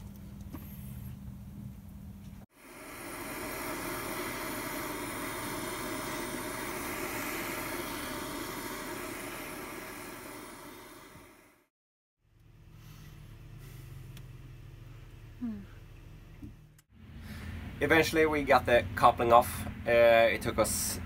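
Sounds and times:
blowtorch flame hissing: 0:02.5 - 0:11.7.

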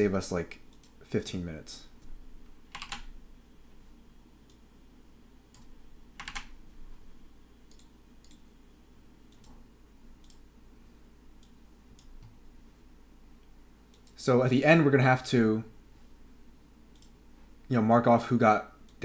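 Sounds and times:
computer keystrokes and clicks: 0:00.7 - 0:01.0, 0:02.7 - 0:03.1, 0:05.5 - 0:06.6, 0:07.6 - 0:08.5, 0:09.3 - 0:10.5, 0:11.4 - 0:12.4, 0:13.9 - 0:14.2, 0:16.9 - 0:17.2.

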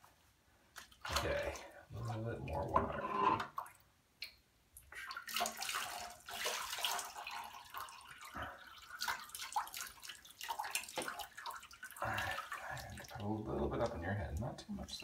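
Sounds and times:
water pouring and splashing: 0:00.8 - 0:02.9, 0:04.9 - 0:14.5.

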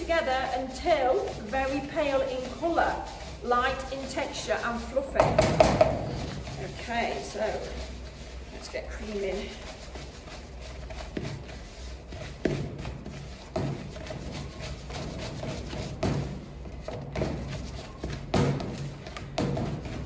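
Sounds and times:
spoon scraping through mixture: 0:00.0 - 0:05.2, 0:05.8 - 0:15.9.

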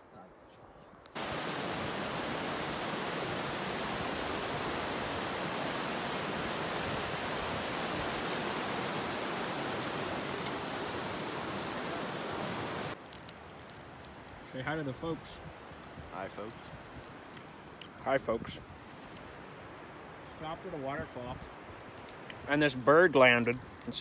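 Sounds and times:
creek rushing over rocks: 0:01.2 - 0:13.0.

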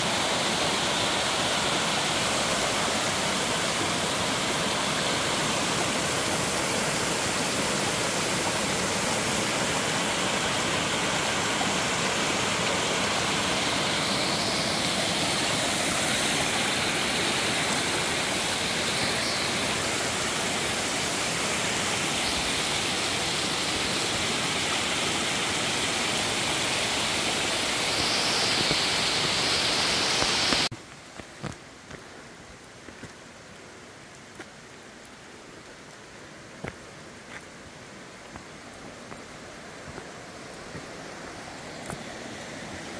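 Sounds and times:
waterfall rushing: 0:00.0 - 0:30.7, 0:34.6 - 0:42.9.

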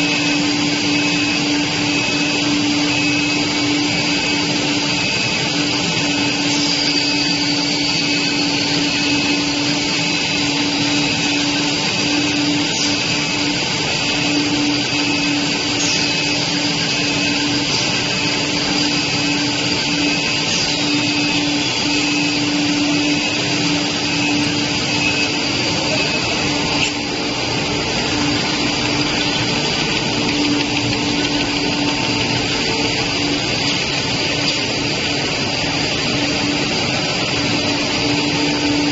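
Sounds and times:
machine noise with low hum: 0:00.0 - 0:38.9.

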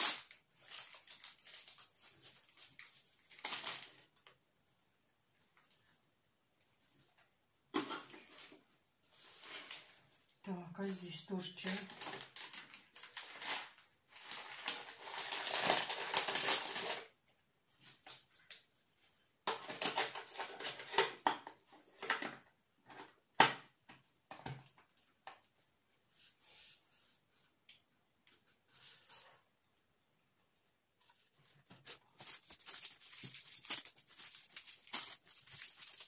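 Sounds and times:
wrapping paper crinkling: 0:00.0 - 0:04.3, 0:11.4 - 0:17.1, 0:31.0 - 0:36.0.

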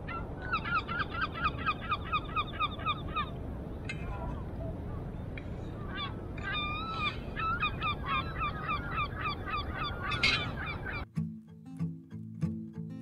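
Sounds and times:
oystercatcher piping calls: 0:00.1 - 0:03.3, 0:05.8 - 0:11.0
acoustic guitar music: 0:11.0 - 0:13.0.

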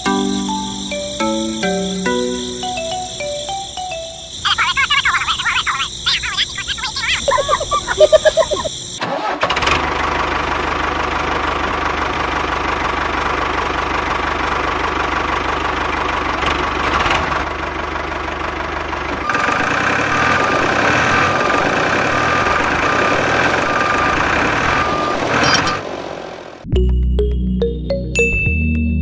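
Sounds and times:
diesel tractor engine chugging: 0:00.0 - 0:26.6.

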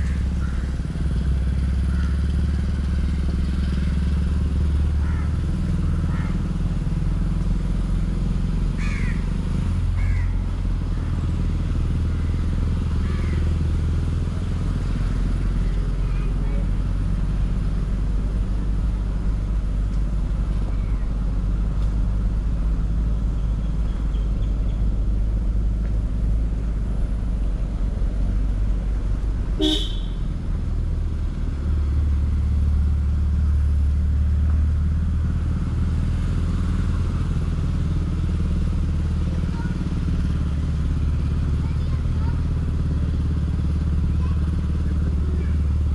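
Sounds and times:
motorcycle engine running: 0:00.0 - 0:36.3, 0:36.9 - 0:45.9
horn toot: 0:29.6 - 0:30.2.

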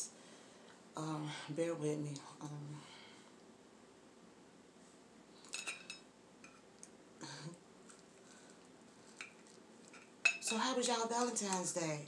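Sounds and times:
cutlery clinking on plate: 0:05.5 - 0:06.7, 0:09.2 - 0:10.6.

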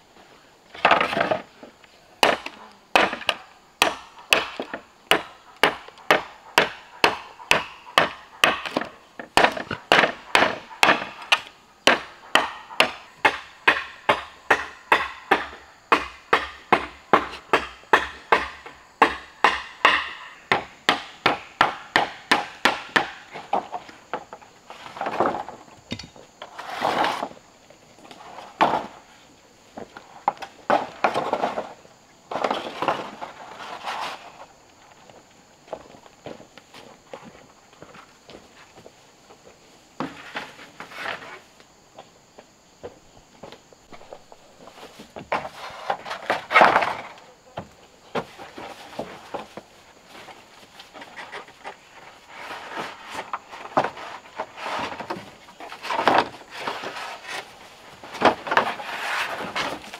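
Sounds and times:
knocks and scrapes: 0:00.7 - 0:02.4, 0:23.2 - 0:34.6, 0:40.0 - 0:41.6, 0:43.4 - 0:59.9
rapid strikes on wood: 0:02.2 - 0:23.7.

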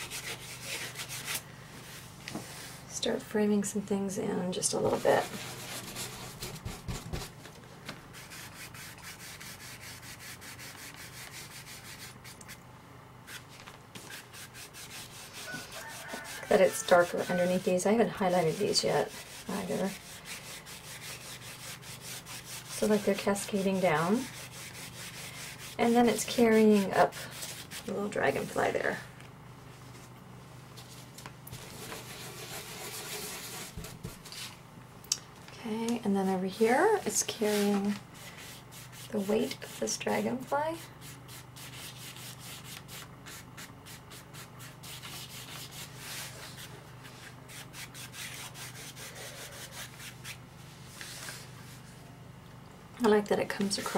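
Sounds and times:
stencil brush scrubbing a surface: 0:00.0 - 0:02.8, 0:04.6 - 0:07.4, 0:08.1 - 0:12.6, 0:13.3 - 0:28.5, 0:31.6 - 0:34.6, 0:36.6 - 0:51.9.

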